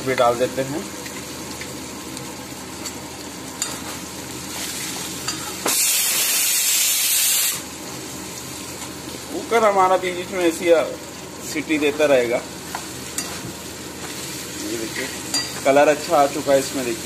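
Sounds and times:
vegetables sizzling in a pan: 0.0s - 17.0s
pressure cooker whistle hissing: 5.7s - 7.7s.

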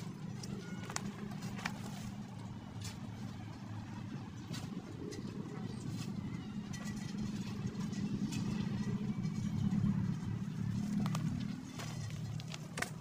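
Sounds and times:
brush snapping and rustling: 0.0s - 3.3s, 10.7s - 13.0s
low engine rumble: 0.0s - 13.0s.

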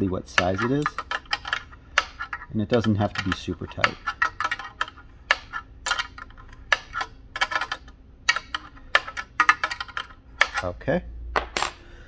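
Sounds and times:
wrench clinking on metal: 11.4s - 12.0s.

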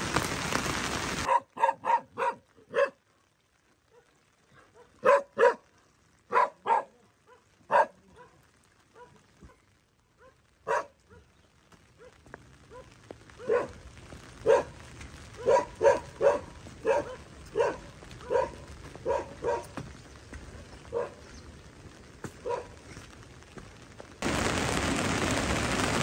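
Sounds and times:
dog barking: 1.2s - 3.0s, 3.9s - 5.7s, 6.3s - 9.6s, 10.2s - 11.3s, 12.0s - 13.8s, 14.4s - 14.8s, 15.4s - 19.8s, 20.9s - 21.3s, 22.4s - 22.8s.

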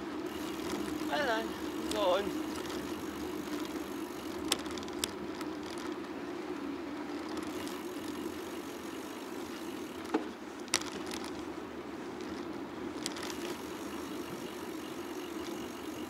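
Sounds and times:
bicycle rolling on road: 0.0s - 16.0s
sharp clicks or rattles: 1.8s - 6.0s, 13.0s - 13.7s.

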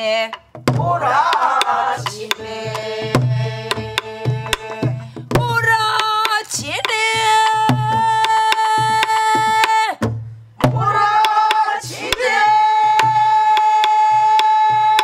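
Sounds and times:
group singing folk song: 0.0s - 9.8s, 10.6s - 15.0s
barrel drums beating: 0.3s - 15.0s.

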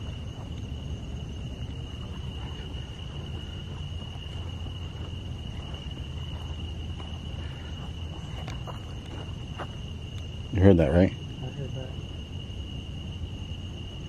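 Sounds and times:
footsteps and handling noise: 0.0s - 10.3s
crickets trilling: 0.0s - 14.0s.

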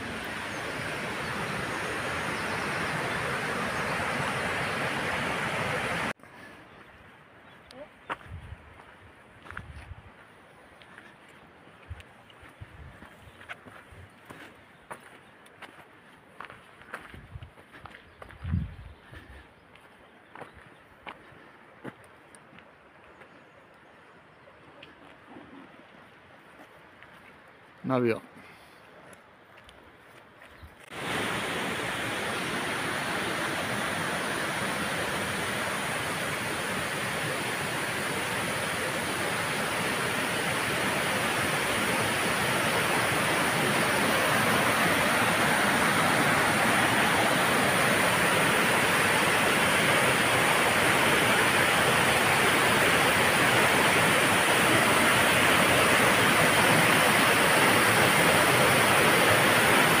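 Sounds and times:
stream rushing over rocks: 0.0s - 6.2s, 30.8s - 60.0s.

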